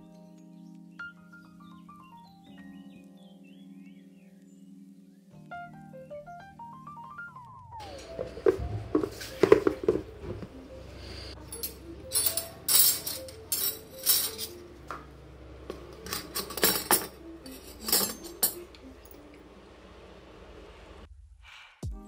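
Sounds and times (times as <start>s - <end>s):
soft background music: 0.0s - 21.1s
metal utensils clinking on steel dishes: 7.8s - 10.4s, 11.4s - 15.0s, 15.7s - 19.5s.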